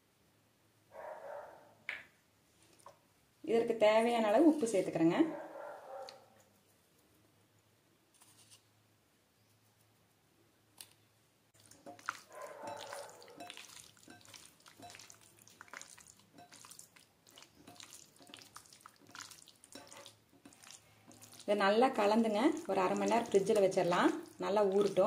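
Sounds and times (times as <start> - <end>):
wet squelches of mixing marinade: 4.0 - 5.2, 10.8 - 25.0.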